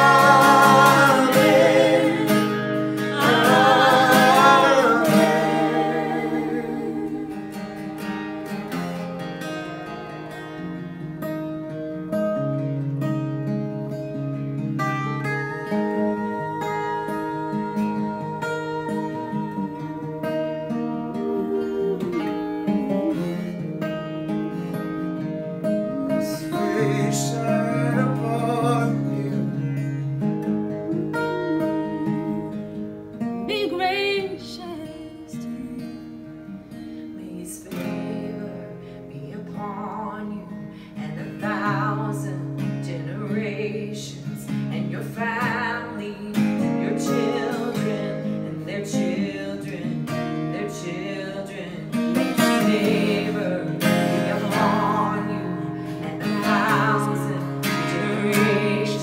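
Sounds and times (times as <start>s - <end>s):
women singing worship song: 0.0s - 8.2s, 15.7s - 23.6s, 25.7s - 28.9s, 30.9s - 32.8s, 37.2s - 59.0s
acoustic guitar strumming: 0.0s - 59.0s.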